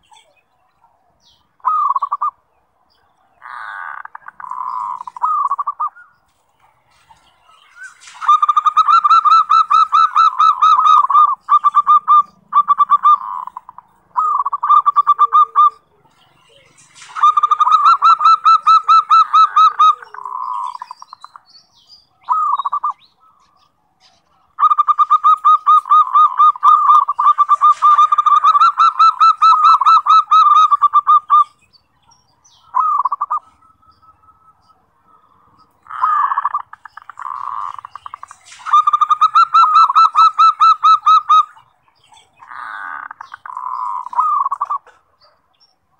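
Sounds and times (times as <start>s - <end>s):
dove cooing: 1.6s - 2.4s, 3.4s - 6.0s, 6.6s - 21.4s, 22.2s - 23.5s, 24.1s - 31.6s, 32.5s - 45.4s.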